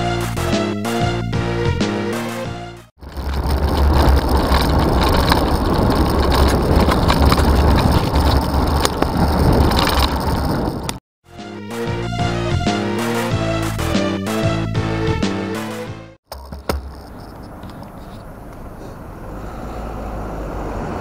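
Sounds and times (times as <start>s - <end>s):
background music: 0.0s - 2.9s, 11.3s - 16.2s
bike clicks and rattles: 3.0s - 11.0s, 16.3s - 18.7s
road noise: 3.0s - 11.0s, 16.3s - 21.0s
wind buffeting microphone: 3.0s - 11.0s.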